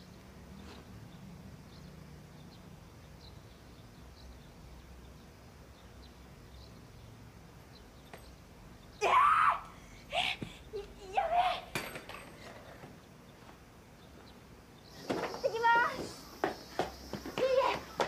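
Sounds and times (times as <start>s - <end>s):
faint bird chirps: 12.6s - 18.0s.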